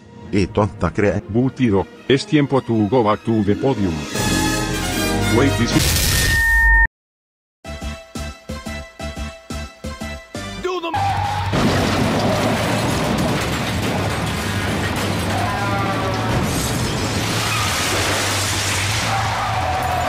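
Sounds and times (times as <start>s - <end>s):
music: 0.0s - 5.9s, 7.6s - 11.5s.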